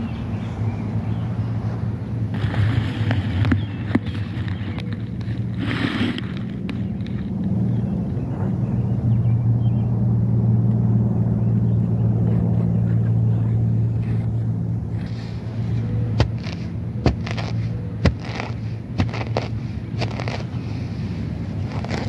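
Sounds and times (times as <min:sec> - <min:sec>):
low motor hum: 0:00.0 - 0:22.0
grass rustling: 0:01.6 - 0:07.5, 0:14.0 - 0:22.0
dandelions snapping: 0:16.1 - 0:20.6, 0:21.6 - 0:22.0.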